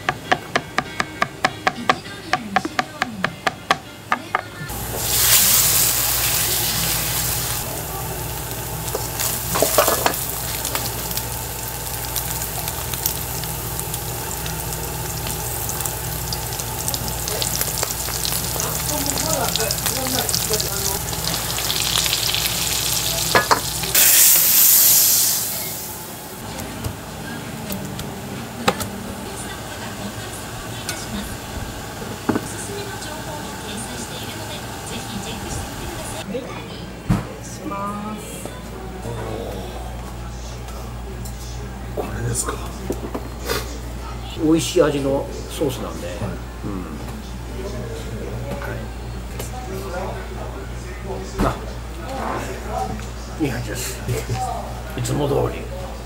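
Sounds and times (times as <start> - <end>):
meat sizzling in hot oil: 4.7 - 26.3.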